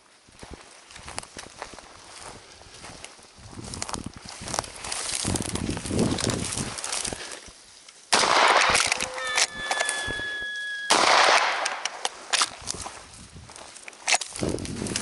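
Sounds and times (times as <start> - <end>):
shotgun blasts: 8.1 - 12.5
steady high tone: 8.7 - 12.0.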